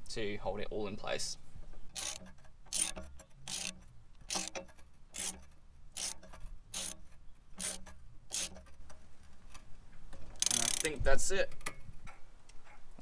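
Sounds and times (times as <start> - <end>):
socket ratchet clattering: 1.9 - 11.0.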